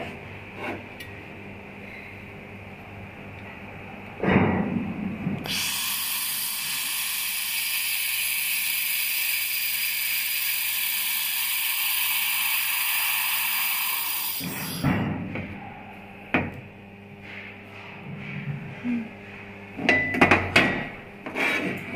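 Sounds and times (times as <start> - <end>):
laser welding gun hissing: 5.5 - 14.9.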